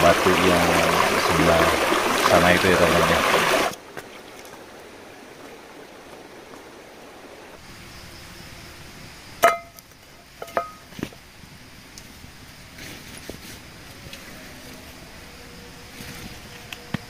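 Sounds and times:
stream rushing over rocks: 0:00.0 - 0:07.6
metal frying pan clinking: 0:09.4 - 0:09.8.

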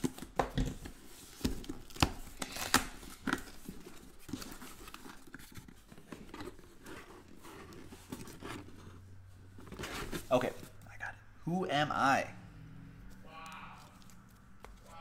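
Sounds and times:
cardboard scraping and rustling: 0:00.0 - 0:10.8.

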